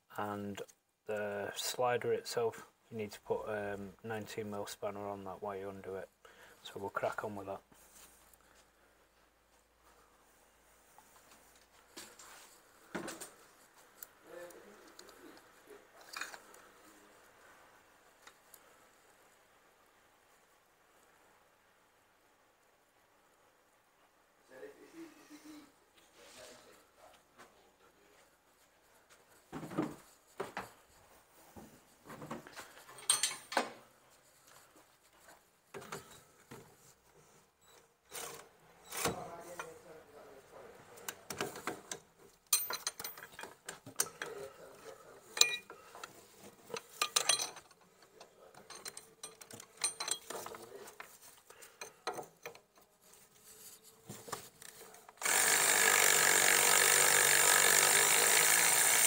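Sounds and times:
hand tools clinking on metal: 33.0 - 33.6, 42.5 - 44.4, 45.3 - 45.9, 46.7 - 47.9, 48.5 - 50.7
powered ratchet running: 55.2 - 59.0.

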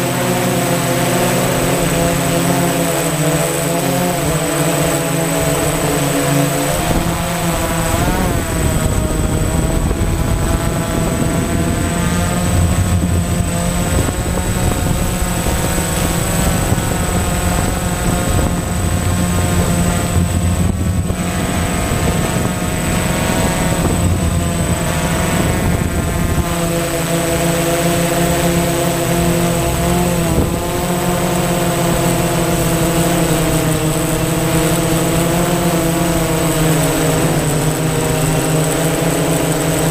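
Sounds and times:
drone propellers whirring: 0.0 - 39.9
wind rumble on microphone: 0.1 - 39.9
high-pitched whine: 1.1 - 39.9.

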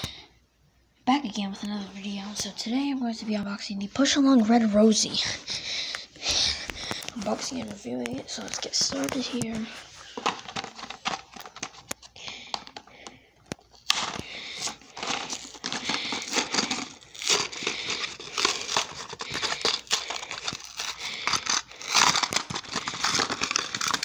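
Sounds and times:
plastic packaging crinkling and tearing: 4.3 - 24.0.

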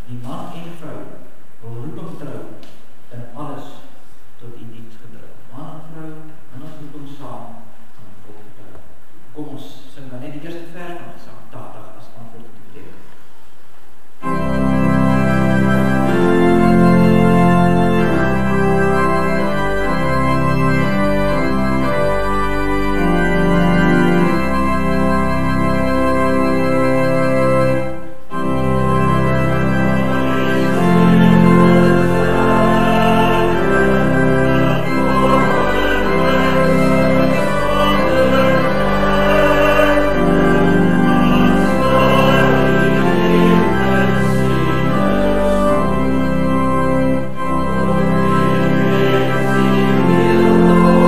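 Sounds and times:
church organ playing hymn: 14.2 - 51.0.

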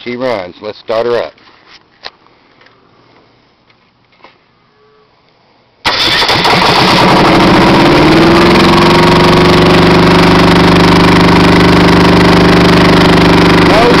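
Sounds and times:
diesel engine starting: 5.8 - 14.0.

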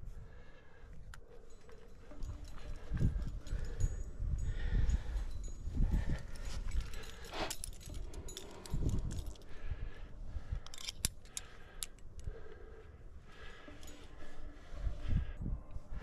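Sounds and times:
metal climbing gear clinking: 0.1 - 16.0.

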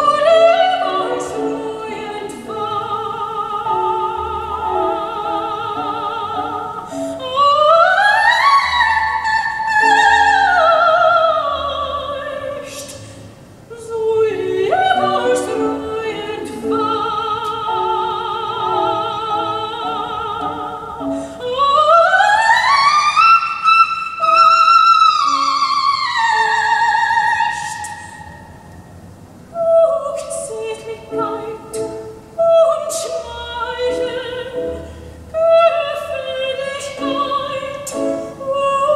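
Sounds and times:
operatic singing with vibrato: 0.0 - 38.9.

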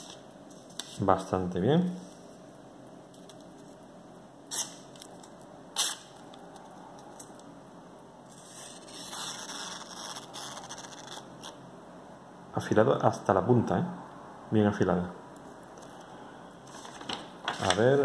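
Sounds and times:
paper rustling: 16.7 - 18.0.

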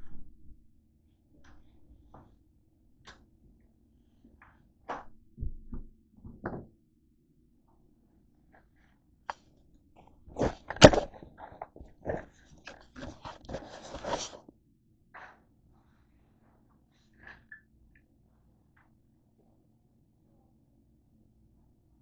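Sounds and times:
camera handling knocks and thumps: 10.4 - 14.1.

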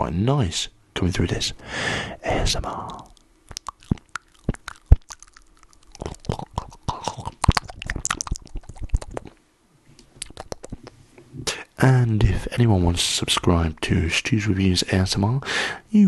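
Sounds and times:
wet mouth clicks and lip smacks: 2.9 - 9.4, 10.0 - 11.0.

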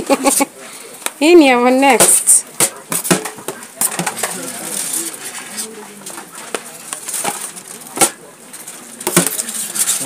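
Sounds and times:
faint background voices: 0.0 - 10.0.

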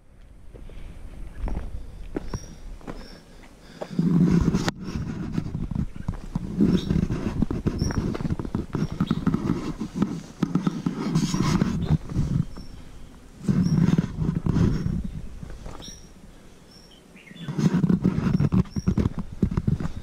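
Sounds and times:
footsteps on dirt and stones: 0.2 - 16.1, 17.4 - 20.0
person breathing heavily: 0.6 - 5.1.

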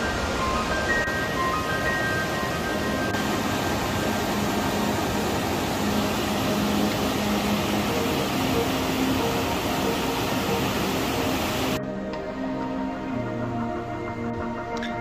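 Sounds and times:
water rushing over rapids: 0.0 - 11.8.

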